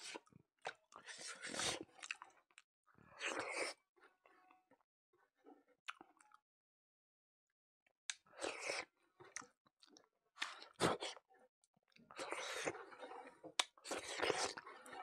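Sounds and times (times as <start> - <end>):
person chewing rice: 1.0 - 2.2, 12.2 - 12.8, 13.6 - 14.6.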